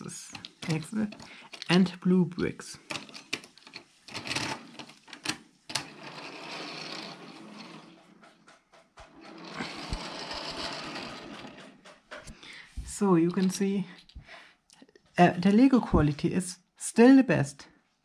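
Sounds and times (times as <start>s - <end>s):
toy train wheels rattling on track: 5.7s - 12.3s.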